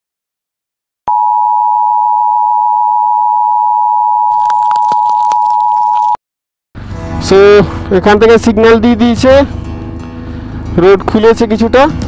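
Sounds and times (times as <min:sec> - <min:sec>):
high electronic beep tone: 0:01.1 - 0:06.2.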